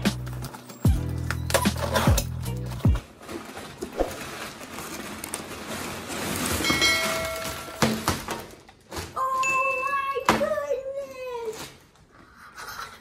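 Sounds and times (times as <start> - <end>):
paper crinkling and rustling: 0.0 - 9.4.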